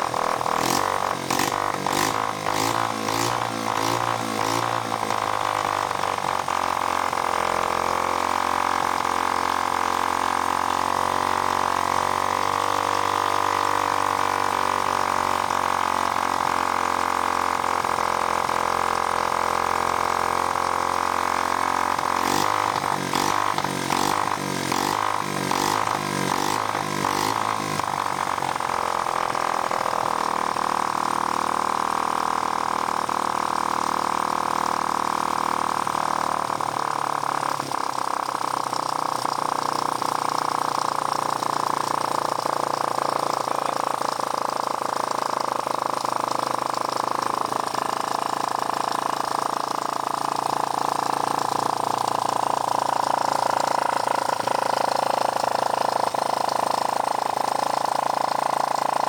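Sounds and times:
small motorcycle engine running: 0.0 - 59.0.

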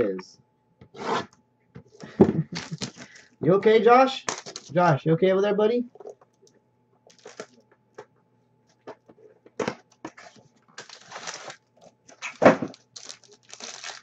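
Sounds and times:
wrapper crinkling and rustling: 2.5 - 3.4, 7.1 - 7.6, 10.1 - 14.0.

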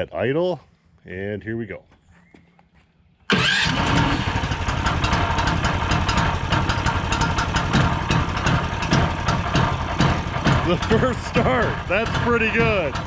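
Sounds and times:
engine idling: 3.3 - 13.0.

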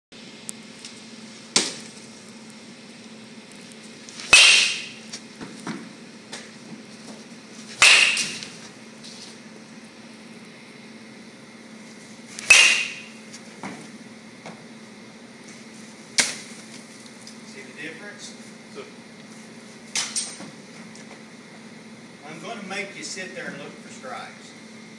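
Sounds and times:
baseball bat hitting balls: 4.2 - 6.6, 7.7 - 8.7, 12.3 - 13.3.

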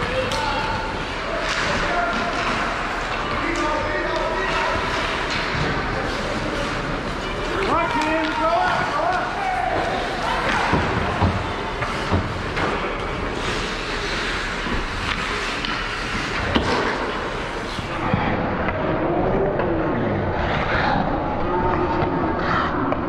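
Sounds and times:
skate blades scraping ice: 1.0 - 18.0.

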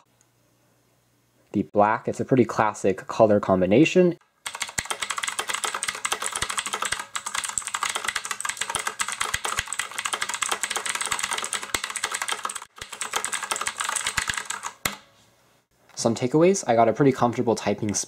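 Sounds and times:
fast clicky keyboard typing: 4.4 - 15.0.

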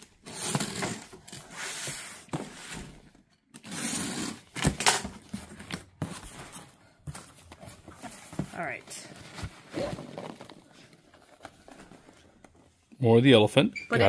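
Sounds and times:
box cutter slicing packing tape: 3.6 - 5.0.

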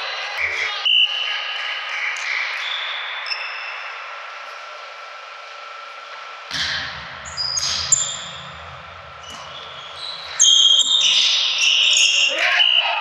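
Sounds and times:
sneakers squeaking on court: 7.3 - 12.3.

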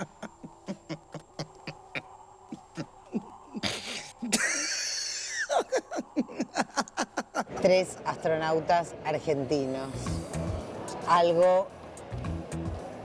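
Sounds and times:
stifled chuckling laughter: 0.0 - 7.6.

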